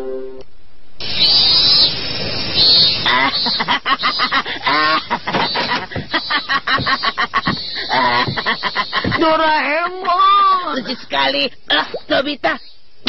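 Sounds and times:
birds chirping: 0:01.0 - 0:13.0
rapid pitched vocal cries: 0:02.6 - 0:09.3.

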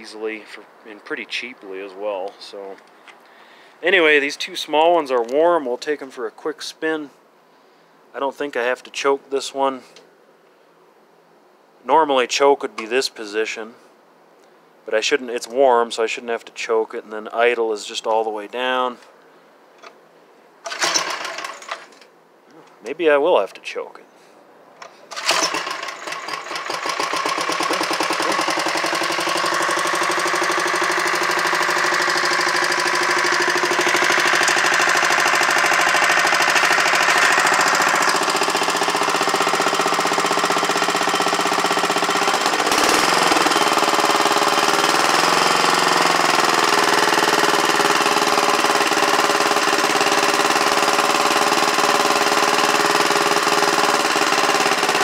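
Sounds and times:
garden tractor engine running: 0:20.6 - 0:21.9, 0:25.1 - 0:55.0.

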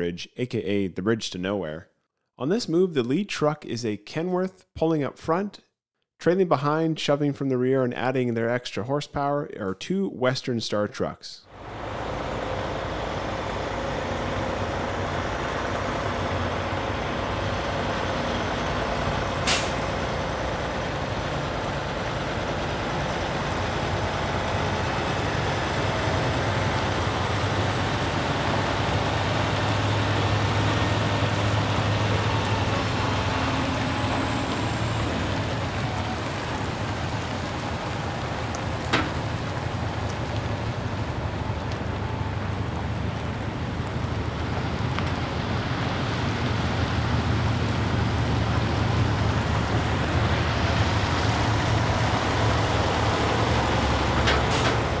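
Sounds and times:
diesel truck engine drone: 0:11.5 - 0:55.0
road noise: 0:11.5 - 0:55.0.

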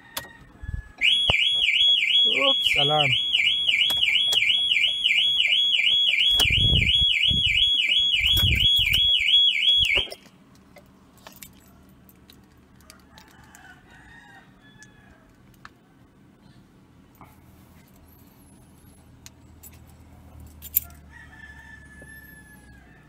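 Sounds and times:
car alarm siren warbling: 0:01.0 - 0:10.2
dull low thumps: 0:06.3 - 0:09.1.

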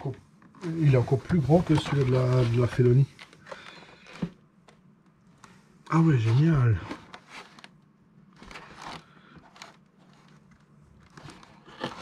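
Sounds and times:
packaging rustling and scraping: 0:00.4 - 0:04.4, 0:05.4 - 0:12.0.

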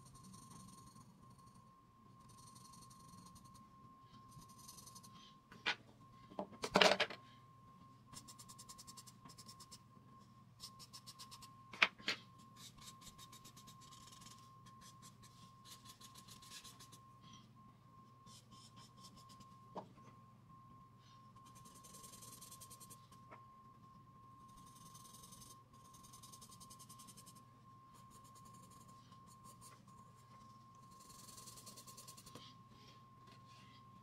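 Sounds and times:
faint high whine: 0:00.0 - 0:34.0
pencil scratching on paper: 0:04.3 - 0:05.2, 0:12.6 - 0:17.0, 0:18.3 - 0:19.5, 0:21.4 - 0:23.0, 0:24.6 - 0:27.4, 0:30.9 - 0:32.4.

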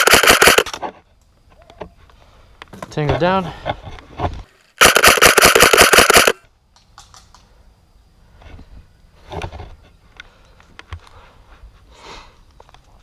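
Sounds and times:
airsoft rifle full-auto burst: 0:00.0 - 0:00.7, 0:04.8 - 0:06.4.

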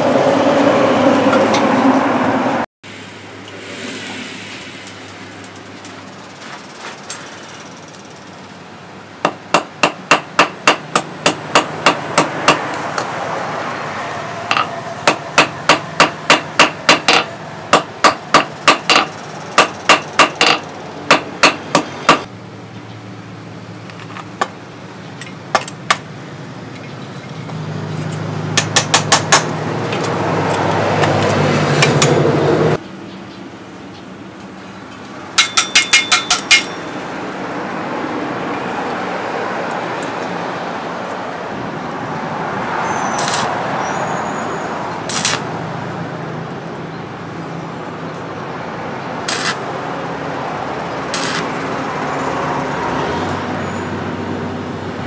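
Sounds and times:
hammer striking steel on anvil: 0:09.2 - 0:12.8, 0:14.5 - 0:22.3, 0:28.6 - 0:29.6, 0:35.3 - 0:37.0.

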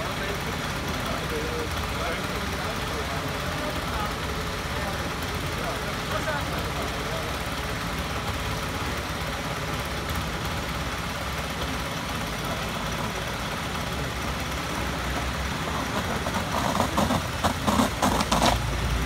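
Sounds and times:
engine idling: 0:00.0 - 0:19.0
loud choppy sounds: 0:14.3 - 0:18.8.

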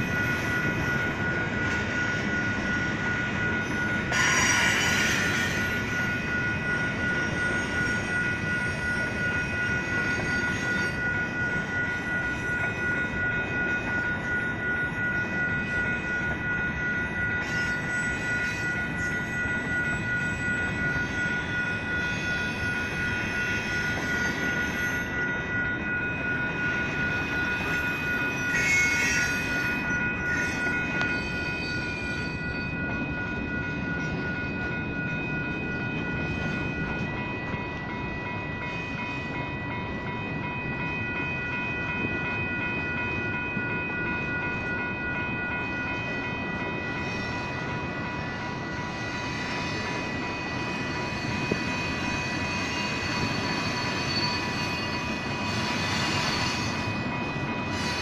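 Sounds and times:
crossing signal bells ringing: 0:00.0 - 0:58.0
freight train rumbling on rails: 0:00.0 - 0:58.0
high squeal: 0:03.6 - 0:06.2, 0:27.2 - 0:32.6, 0:50.7 - 0:58.0.

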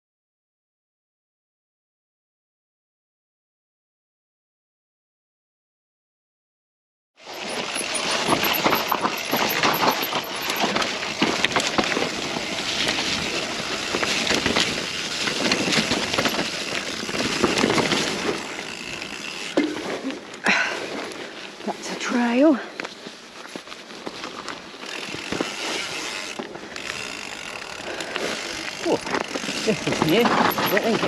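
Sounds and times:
bike rattling and clicking: 0:07.2 - 0:31.0
bike tyres on rough trail: 0:07.2 - 0:31.0.

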